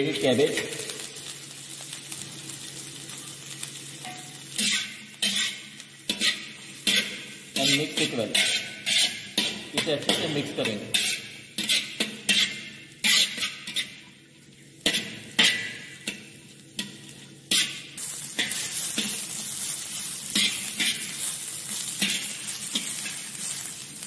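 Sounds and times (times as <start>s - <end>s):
vegetables sizzling in oil: 0.0s - 24.0s
metal spatula scraping a wok: 4.0s - 14.0s, 16.8s - 23.8s.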